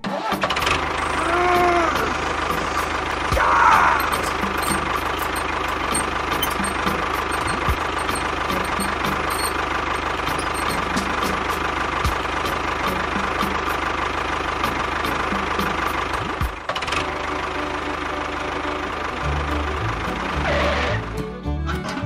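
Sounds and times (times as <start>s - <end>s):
toy tractor motor whining: 0.6s - 11.7s.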